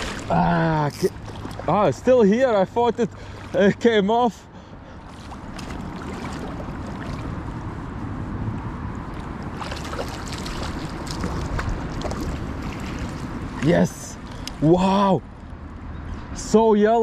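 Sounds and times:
small splashes: 0.0s - 2.0s, 3.0s - 3.8s, 4.9s - 7.6s, 9.1s - 14.6s
rushing river water: 0.0s - 4.1s, 4.7s - 15.0s
wind buffeting microphone: 5.2s - 14.5s.

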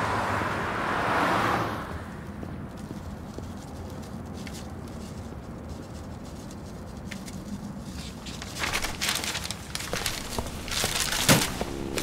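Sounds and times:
newspaper rustling: 3.0s - 12.0s.

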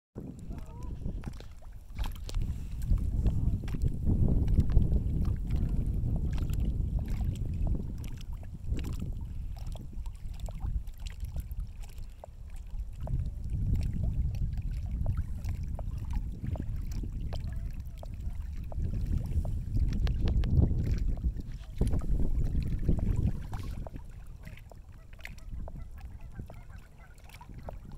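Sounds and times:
gusty wind on microphone: 0.2s - 27.9s
waves lapping on stony shore: 0.2s - 27.9s.

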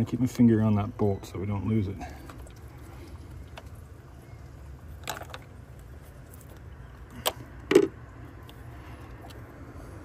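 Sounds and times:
low steady hum: 0.0s - 10.0s
hands handling engine parts clicking: 4.8s - 9.4s.

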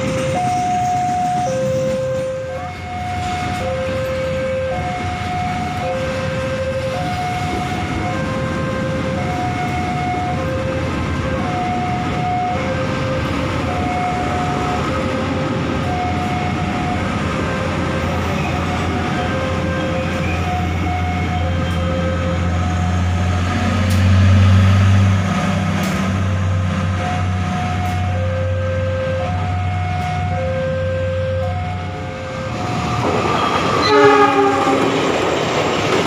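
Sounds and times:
level crossing alarm two tones: 0.0s - 23.4s, 27.0s - 34.8s
train rumbling over crossing: 0.0s - 36.0s.

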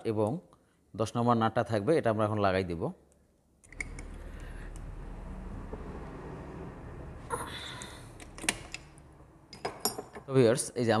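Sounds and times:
engine rumbling: 3.7s - 9.8s.

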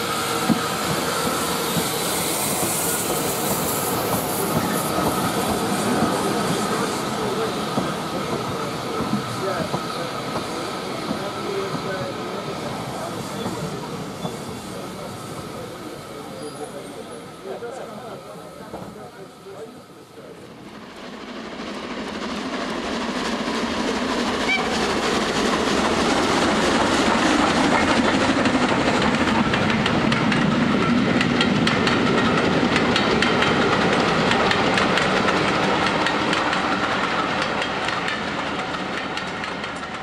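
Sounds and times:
train carriages rolling past: 0.0s - 40.0s
wheels clicking over rail joints: 27.2s - 40.0s.

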